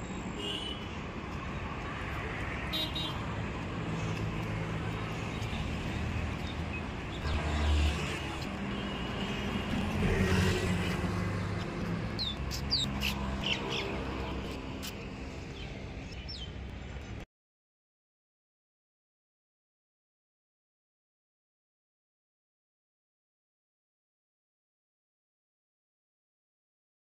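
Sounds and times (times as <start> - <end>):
passing traffic: 0.0 - 17.2
vehicle engines humming: 1.0 - 16.7.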